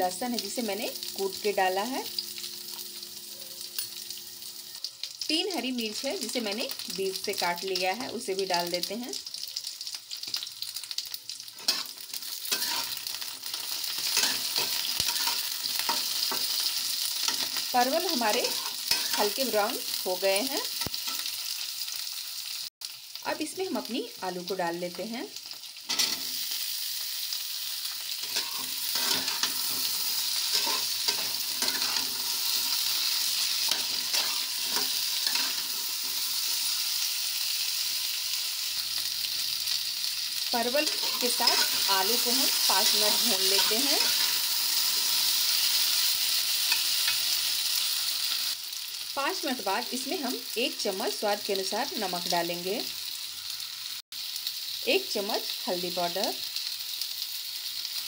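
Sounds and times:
vegetables sizzling in hot oil: 0:00.0 - 0:58.0
steel spatula scraping pan: 0:12.5 - 0:13.0, 0:14.0 - 0:16.4, 0:28.2 - 0:36.3, 0:40.8 - 0:42.0.

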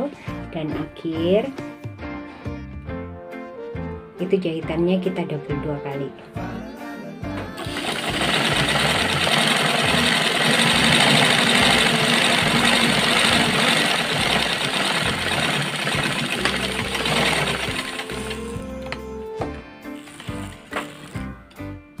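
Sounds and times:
background music: 0:00.0 - 0:22.0
sewing machine rattling: 0:07.6 - 0:19.0, 0:20.0 - 0:21.3.

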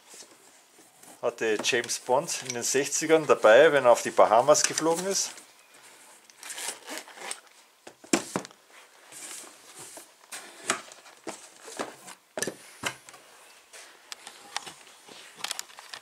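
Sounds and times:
cardboard rustling: 0:08.1 - 0:12.2.

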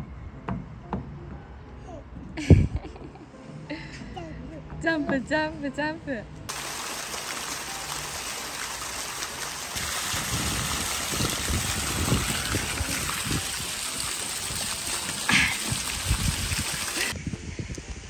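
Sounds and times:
fountain jets splashing into water: 0:06.5 - 0:17.2.

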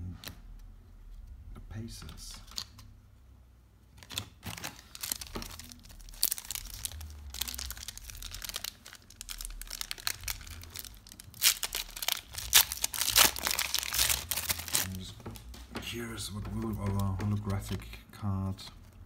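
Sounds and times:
foil wrapper crinkling and tearing: 0:04.0 - 0:15.2.

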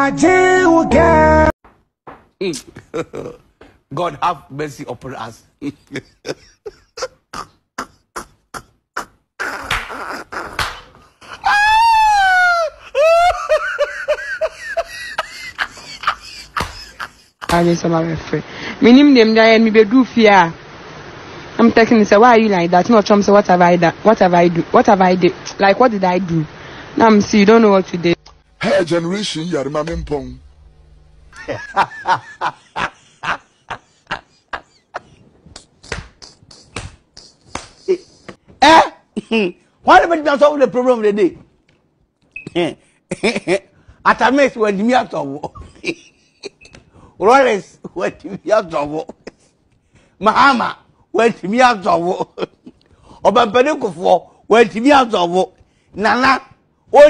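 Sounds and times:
sharp hand claps: 0:09.6 - 0:11.0, 0:16.6 - 0:17.6, 0:35.8 - 0:37.9
man laughing hard: 0:10.2 - 0:17.5, 0:31.3 - 0:38.3.

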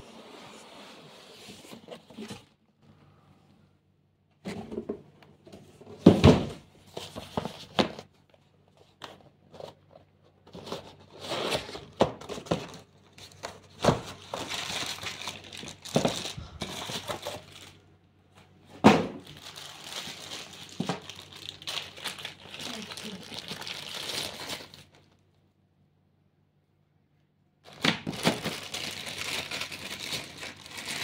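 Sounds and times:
plastic bag crinkling: 0:12.7 - 0:17.8, 0:19.2 - 0:25.2, 0:27.7 - 0:31.0.

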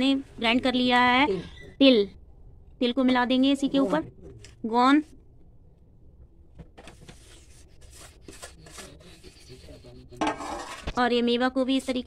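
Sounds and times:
metal spatula scraping steel bowl: 0:10.2 - 0:11.0.

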